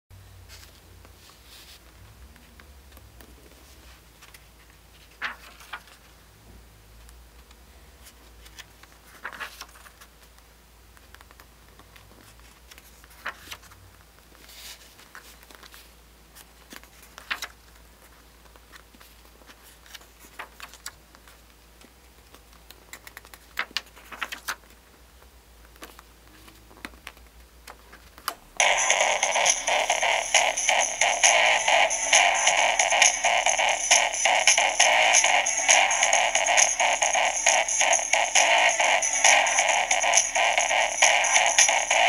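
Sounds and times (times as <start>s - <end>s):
paper pages rustling: 0.5s - 6.2s, 8.0s - 10.4s, 11.0s - 24.9s, 25.6s - 28.3s
loud music from small speaker: 28.6s - 42.0s.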